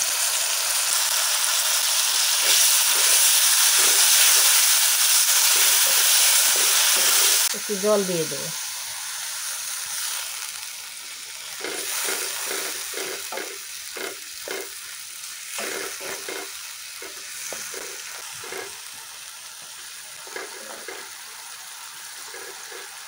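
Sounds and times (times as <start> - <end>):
chicken sizzling in oil: 0.0 - 23.0
wooden spatula scraping pan: 11.6 - 14.7, 15.6 - 18.8, 20.2 - 21.2, 22.2 - 23.0.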